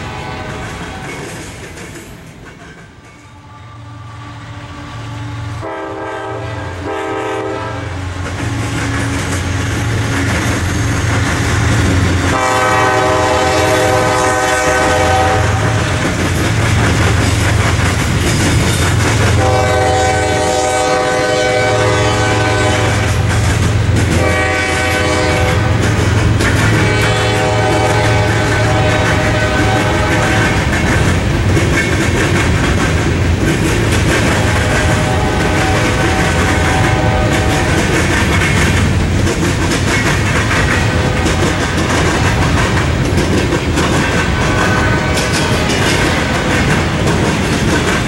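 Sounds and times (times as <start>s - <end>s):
train air horn blasts: 0.0s - 1.1s, 3.2s - 10.1s, 11.6s - 16.0s, 19.3s - 23.4s, 24.1s - 30.8s, 34.2s - 38.0s, 40.8s - 41.8s, 44.4s - 45.9s
train wheels clattering on rails: 0.0s - 3.4s, 5.6s - 48.0s
diesel locomotive rumbling: 0.0s - 48.0s.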